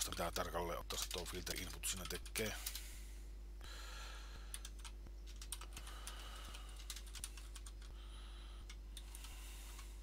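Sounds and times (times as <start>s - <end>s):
faint low hum: 0.0s - 10.0s.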